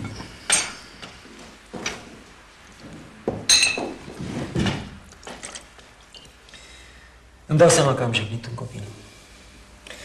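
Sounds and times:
cutlery and tableware clinking: 3.5 - 4.0.

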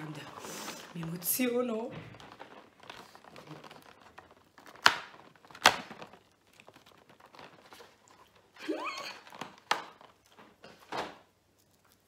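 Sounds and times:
cardboard box rustling: 0.0 - 8.5
cardboard tearing cracks: 2.2 - 8.5.

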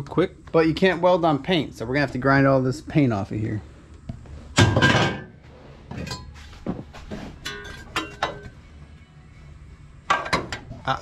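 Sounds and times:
metal tools clinking: 7.4 - 8.5.

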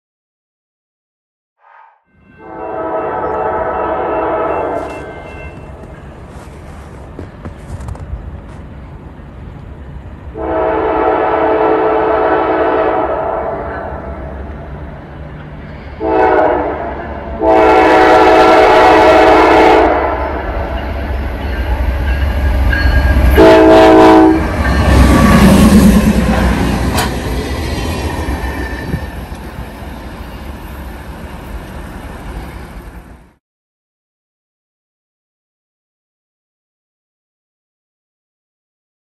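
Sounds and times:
locomotive air horn: 2.4 - 5.9, 10.4 - 14.2, 16.0 - 20.8, 23.2 - 26.8
locomotive engine rumble: 4.4 - 16.1, 20.2 - 33.2.

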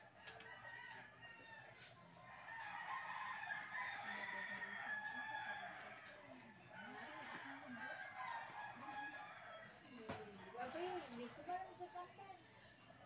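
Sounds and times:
rooster crowing: 0.2 - 6.0.

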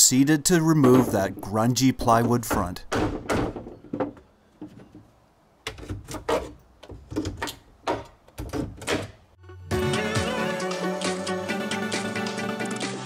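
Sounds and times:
hammer knocking on wood: 0.8 - 1.4
background music: 9.4 - 13.0.

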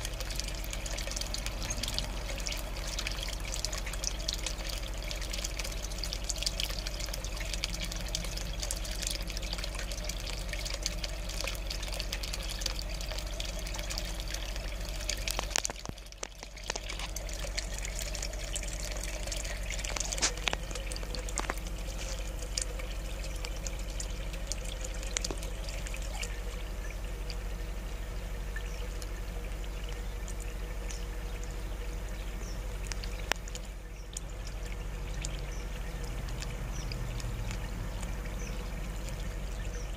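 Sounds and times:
steady low hum: 0.0 - 39.9
water pouring into pond: 0.0 - 39.9.

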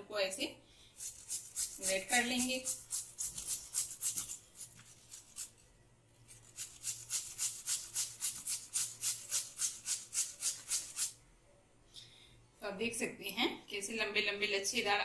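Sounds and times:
potato rasped on a box grater: 1.0 - 5.6, 6.2 - 11.2.

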